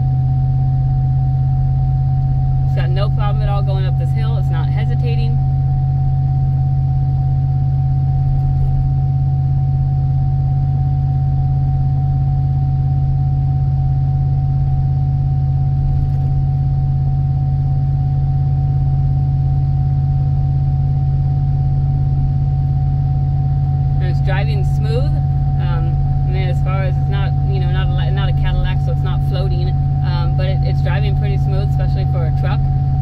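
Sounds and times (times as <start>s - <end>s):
engine and exhaust drone: 0.0s - 33.0s
road rumble: 1.2s - 6.6s, 23.9s - 33.0s.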